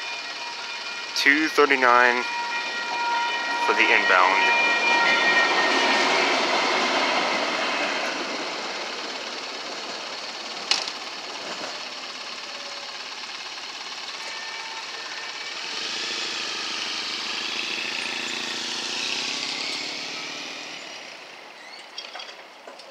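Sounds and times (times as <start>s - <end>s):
street traffic noise: 0.0s - 22.9s
vehicle engines moving off: 2.8s - 22.9s
motorcycle: 5.1s - 22.9s.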